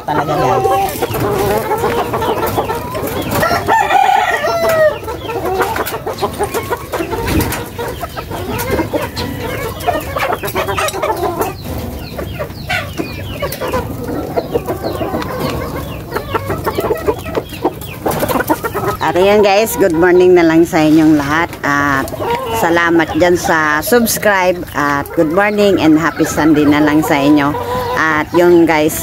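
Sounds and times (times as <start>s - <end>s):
chickens clucking: 0.0s - 29.0s
rooster crowing: 3.3s - 5.1s.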